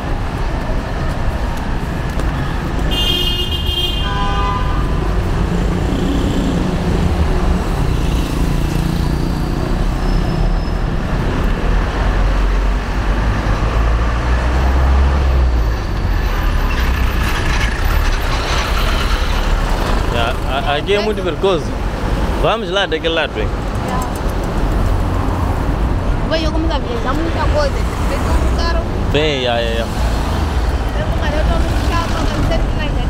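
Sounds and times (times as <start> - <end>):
car horn toots: 2.9 - 5.0
heavy vehicle passing: 4.8 - 33.0
vehicle engines running: 4.8 - 33.0.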